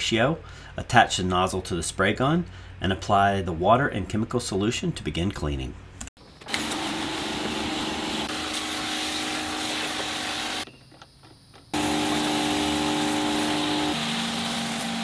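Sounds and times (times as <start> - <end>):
electric pump running: 6.4 - 10.7, 11.8 - 15.0
spray gun hissing: 6.6 - 10.6, 11.8 - 15.0.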